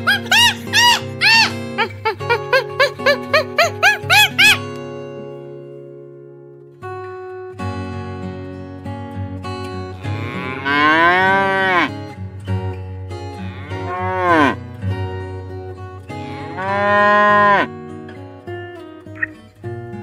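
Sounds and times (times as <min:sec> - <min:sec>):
acoustic guitar music: 0:00.0 - 0:20.0
cow mooing: 0:10.0 - 0:11.9, 0:13.4 - 0:14.6, 0:16.3 - 0:17.7.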